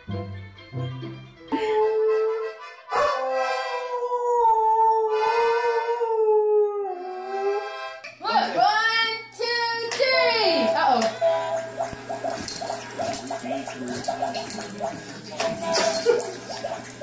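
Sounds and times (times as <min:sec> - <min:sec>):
toy accordion playing: 0:00.8 - 0:04.0, 0:05.1 - 0:06.2, 0:07.0 - 0:08.1.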